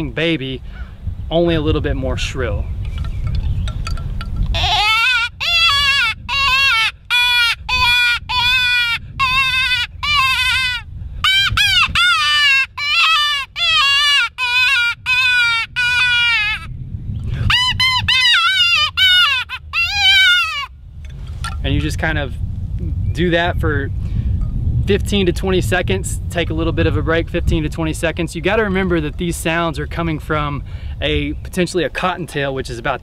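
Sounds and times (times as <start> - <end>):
predator call wailing: 4.6 - 16.7, 17.4 - 20.7.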